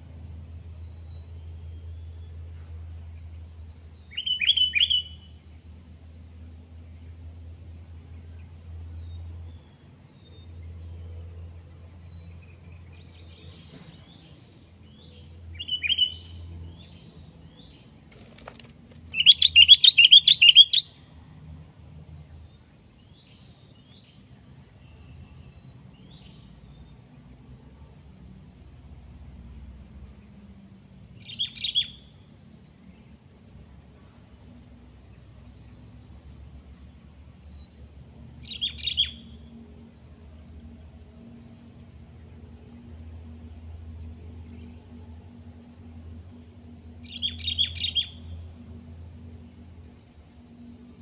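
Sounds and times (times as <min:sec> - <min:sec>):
bird chirping: 0:04.0 - 0:05.3, 0:12.0 - 0:21.0, 0:31.2 - 0:32.1, 0:38.4 - 0:39.4, 0:47.0 - 0:48.3.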